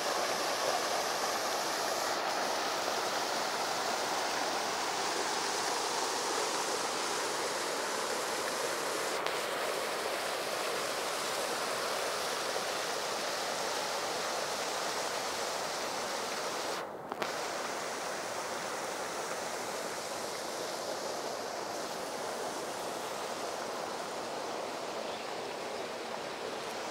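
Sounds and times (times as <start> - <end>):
water rushing over rocks: 0.0 - 26.9.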